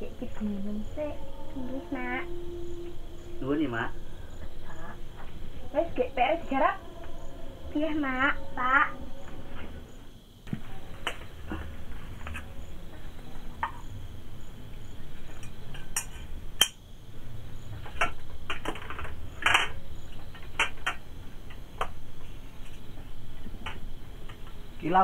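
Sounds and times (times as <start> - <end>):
crickets chirping: 0.0 - 25.0.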